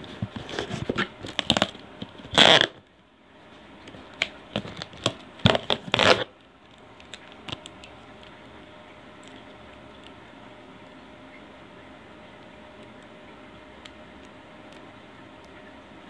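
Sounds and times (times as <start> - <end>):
knife slicing packing tape: 0.5 - 2.8, 5.0 - 6.3
label peeling off crackling: 4.1 - 6.3.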